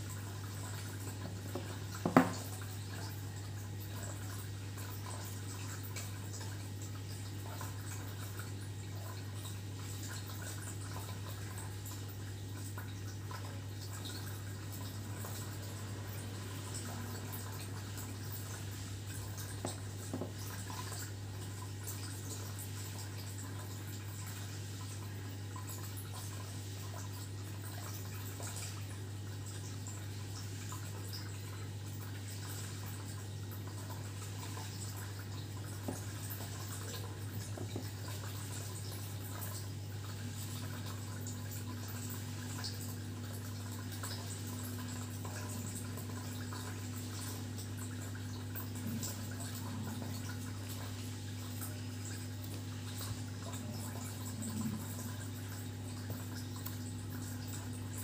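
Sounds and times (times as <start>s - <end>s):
low electrical hum: 0.0s - 58.0s.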